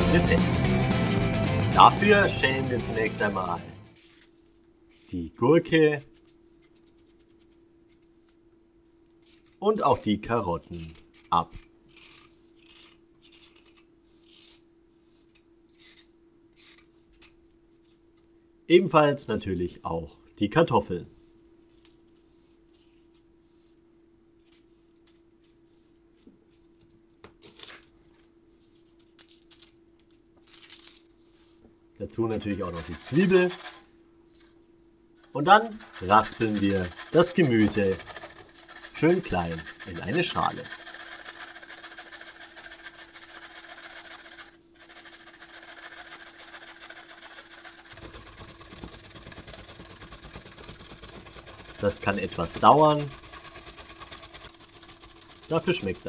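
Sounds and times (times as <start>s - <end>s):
peeler scraping potato: 10.6s - 14.7s, 15.7s - 18.0s, 32.1s - 33.9s, 35.3s - 56.0s
carrots rasping on grater: 32.2s - 33.9s, 35.5s - 56.0s.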